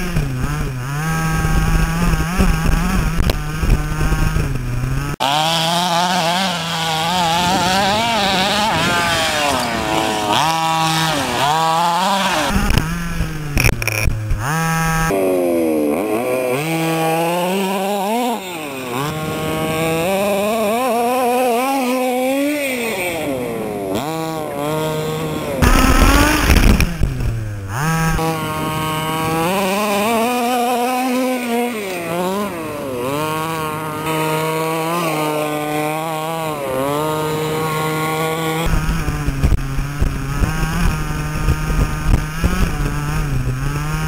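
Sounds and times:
small two-stroke engine revving: 0.0 - 44.0.

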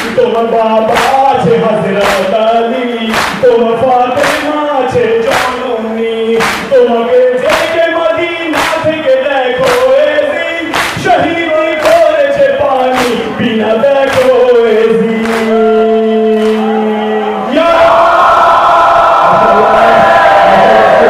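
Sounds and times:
man singing a lament into microphone: 0.0 - 17.7
mourners chanting: 13.3 - 21.0.

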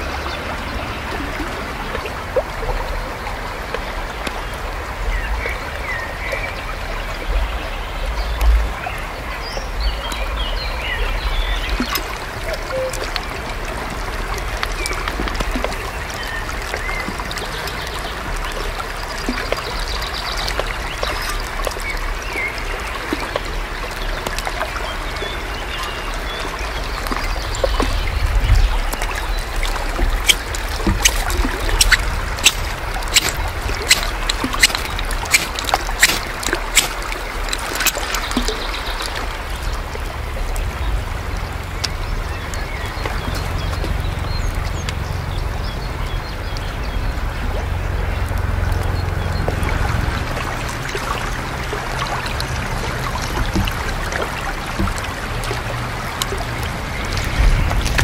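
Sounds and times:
rushing water: 0.0 - 58.0
bird chirps: 12.7 - 13.2, 30.2 - 38.0.

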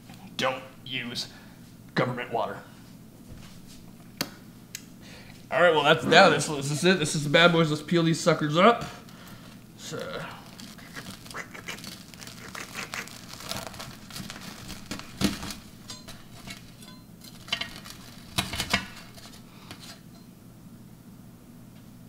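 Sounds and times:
bread crust crackling and tearing: 9.8 - 20.0.

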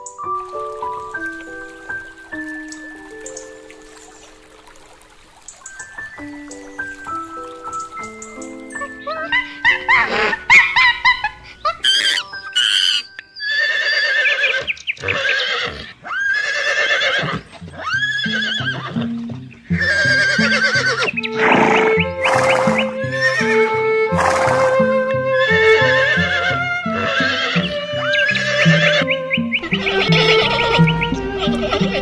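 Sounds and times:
horse whinnying: 11.8 - 19.1, 19.7 - 32.0.

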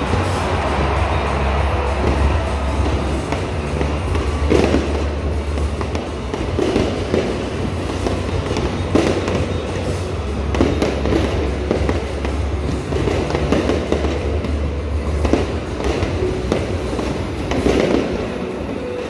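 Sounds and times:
fireworks bangs and crackles: 0.0 - 19.0.

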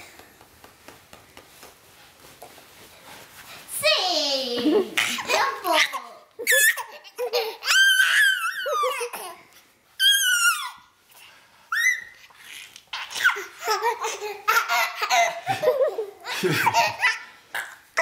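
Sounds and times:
baby laughing and squealing: 5.0 - 9.4, 10.0 - 10.8, 11.7 - 18.0
adult laughing: 15.4 - 17.1.

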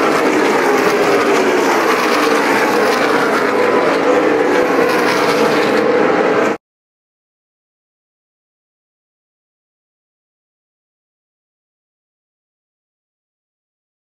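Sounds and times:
race car engines droning: 0.0 - 6.6.

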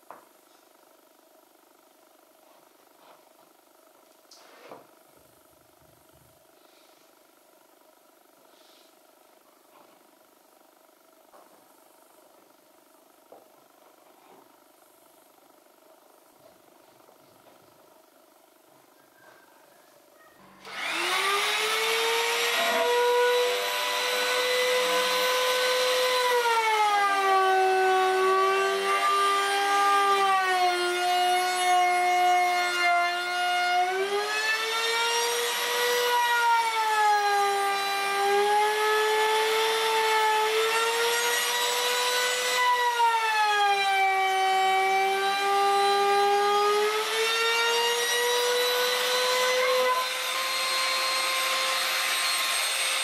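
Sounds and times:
electric router whining: 20.4 - 53.0
router bit cutting wood: 20.6 - 53.0.

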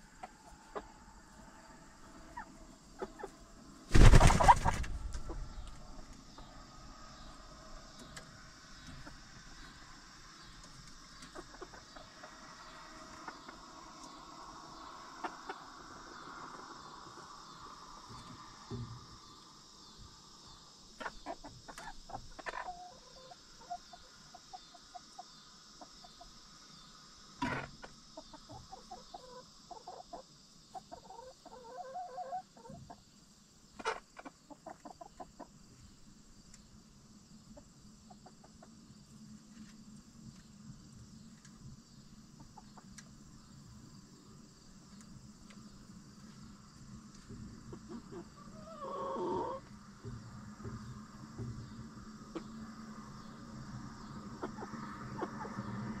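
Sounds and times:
hens clucking softly: 0.0 - 1.4, 2.1 - 3.5, 8.8 - 18.8, 20.9 - 26.4, 27.4 - 33.1, 33.8 - 35.6, 37.5 - 38.8, 47.1 - 53.3, 54.0 - 56.0.

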